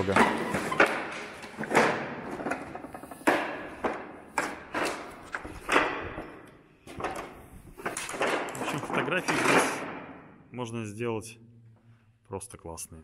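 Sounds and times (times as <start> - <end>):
footsteps on rattling slate sheets: 0.0 - 10.1.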